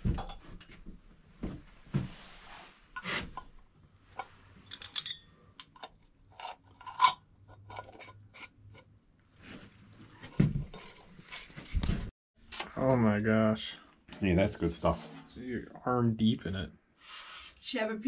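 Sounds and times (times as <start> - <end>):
clinks of lids and glass: 4.6 - 7.2.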